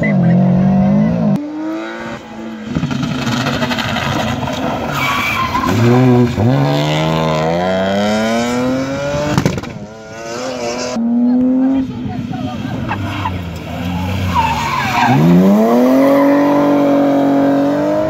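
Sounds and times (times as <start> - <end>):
rally car engine revving: 0.0 - 18.0.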